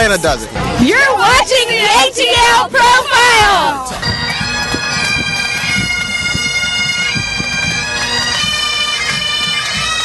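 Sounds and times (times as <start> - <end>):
low drum beats: 0.1 - 9.9
bagpipes playing over drones: 3.8 - 10.0.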